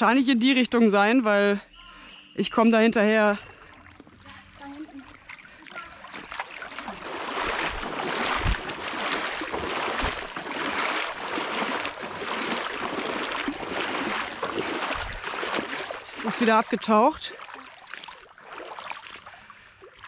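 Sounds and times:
water splashing from wading: 1.7s - 20.0s
low thumps: 7.1s - 9.0s.

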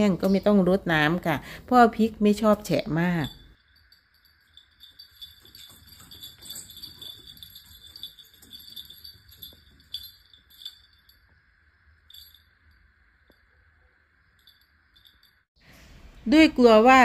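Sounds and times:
faint high tinkling ringing: 2.0s - 15.6s.

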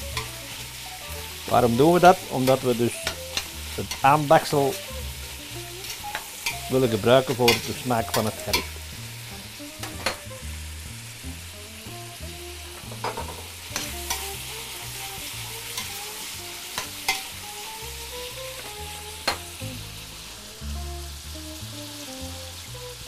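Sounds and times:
meat sizzling in a pot: 0.0s - 23.0s
metal tongs scraping a pot: 0.1s - 8.8s, 9.8s - 10.2s, 12.8s - 14.8s, 15.4s - 17.4s.

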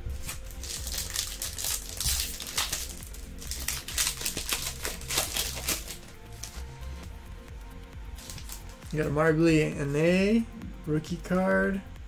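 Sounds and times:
background music: 0.0s - 12.0s
foil wrapper tearing and crinkling: 0.1s - 6.7s, 8.1s - 9.0s.

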